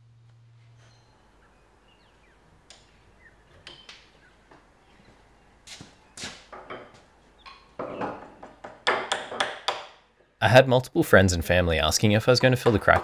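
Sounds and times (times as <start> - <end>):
knocks and scrapes on wood: 5.7 - 9.9, 12.4 - 13.0.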